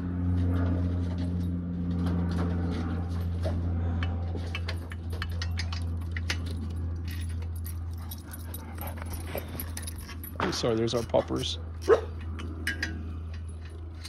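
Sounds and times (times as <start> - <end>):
steady low hum: 0.0 - 14.0
wrench and bolts clinking: 5.4 - 14.0.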